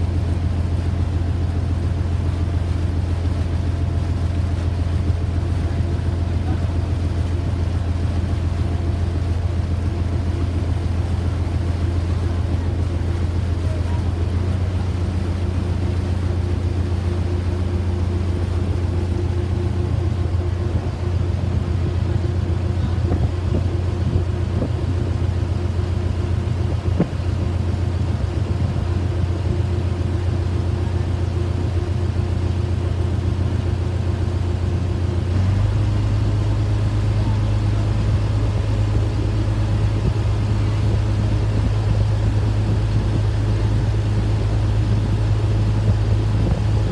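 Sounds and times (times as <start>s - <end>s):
ferry engine droning: 0.0s - 46.9s.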